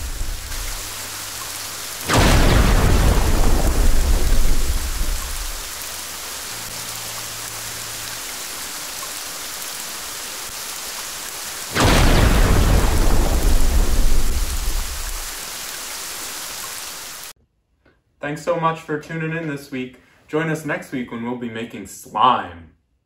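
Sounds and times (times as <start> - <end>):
loud thunder clap: 0.0 - 0.9, 2.1 - 5.6, 11.7 - 15.4
thunder rumbling: 0.0 - 1.3, 2.0 - 5.8, 11.7 - 15.4
rain hiss: 0.0 - 17.4.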